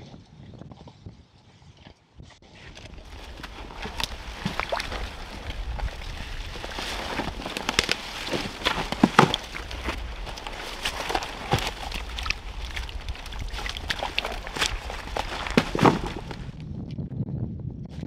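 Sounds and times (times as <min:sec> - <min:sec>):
crunching footsteps: 0:02.6 - 0:16.6
twigs cracking and snapping: 0:02.7 - 0:16.7.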